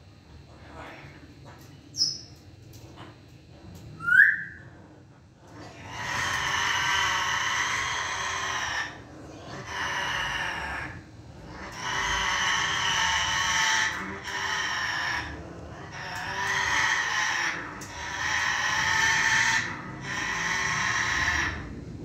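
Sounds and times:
parrot long drawn-out calls: 0:04.0 - 0:04.6, 0:05.7 - 0:09.0, 0:09.6 - 0:11.0, 0:11.6 - 0:21.7
parrot whistling: 0:04.0 - 0:04.6.

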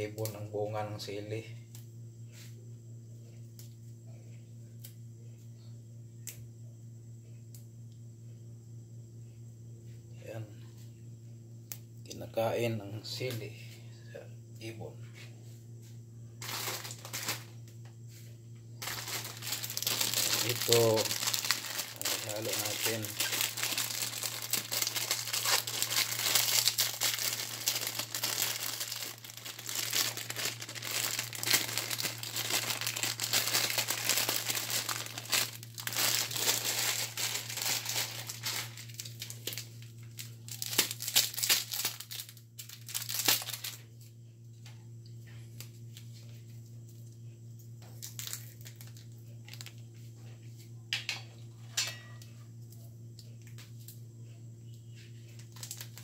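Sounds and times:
plastic sachets crinkling: 0:16.4 - 0:17.6, 0:18.8 - 0:43.8, 0:47.9 - 0:49.8, 0:55.3 - 0:56.0.

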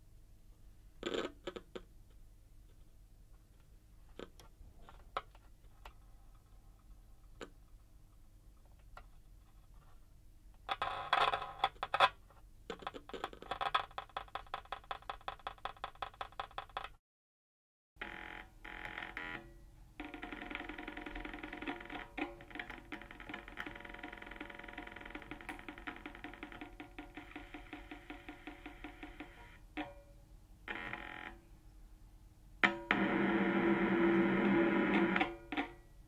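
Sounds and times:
electrical clicks and crackles: 0:18.8 - 0:29.9
glitchy electronic buzz: 0:32.6 - 0:35.7.

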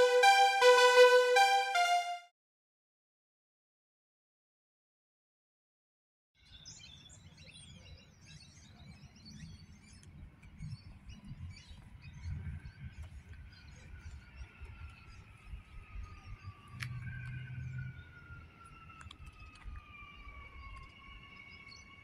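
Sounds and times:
electric train whine: 0:00.0 - 0:02.2, 0:14.1 - 0:22.0.

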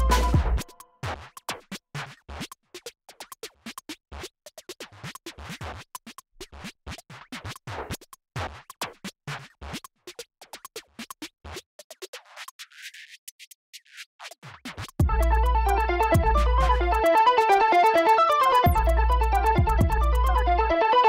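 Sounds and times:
electronic music with choppy beat: 0:00.0 - 0:01.6, 0:06.5 - 0:21.0.

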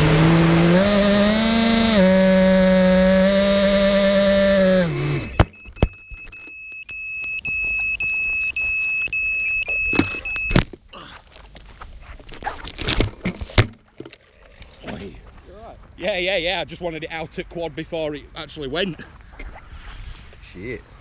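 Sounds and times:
quadcopter motors spooling down: 0:00.0 - 0:05.5
high electronic beep: 0:05.1 - 0:10.6
knocks and rustling: 0:09.9 - 0:14.2.

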